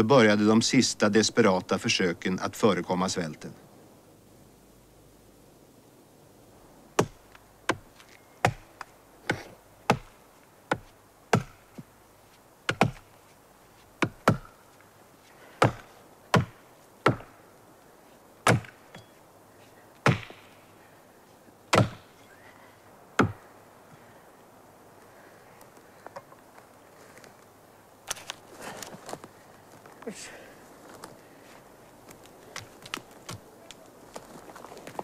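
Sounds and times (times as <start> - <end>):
axe chopping into tree trunk: 7.0 - 7.8, 8.4 - 11.9, 12.7 - 13.1, 14.0 - 14.6, 15.6 - 17.3, 18.4 - 19.1, 20.0 - 20.5, 21.7 - 22.1, 23.2 - 23.4.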